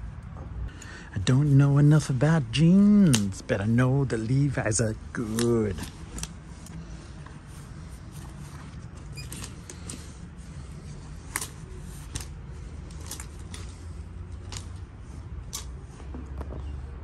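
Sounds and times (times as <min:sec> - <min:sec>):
steady low hum: 0:00.0 - 0:17.0
hangers clicking on metal rail: 0:11.2 - 0:15.8.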